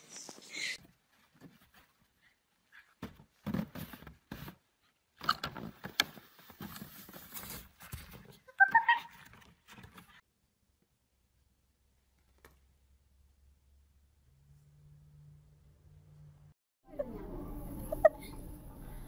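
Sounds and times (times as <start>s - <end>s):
high-pitched yelp: 8.5s - 9.2s.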